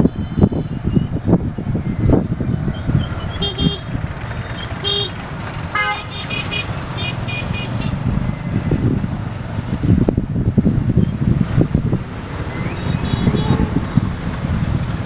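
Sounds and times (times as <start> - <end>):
vehicle horns tooting: 0.0 - 0.8, 3.3 - 8.0, 12.6 - 14.0
motorbike engine rumble: 0.0 - 15.0.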